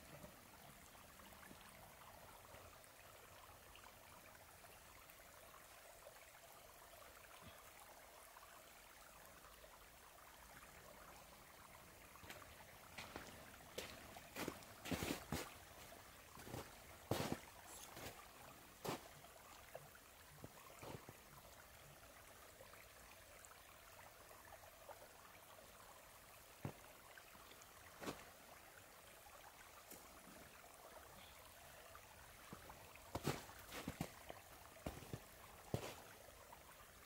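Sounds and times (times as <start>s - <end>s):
trickle of running water: 0.0s - 37.0s
footsteps in snow: 13.0s - 18.2s, 33.1s - 34.1s, 34.8s - 36.0s.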